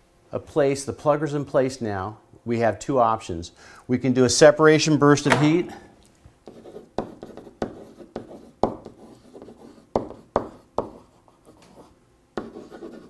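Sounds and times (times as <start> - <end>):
marker scratching on whiteboard: 6.4 - 13.0.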